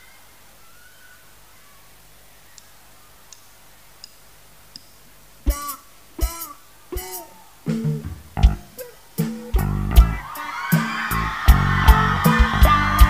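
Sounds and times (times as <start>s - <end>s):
drumstick clicks: 3.3s - 5.0s
electric guitar chords: 5.5s - 13.0s
rock band playing: 5.5s - 13.0s.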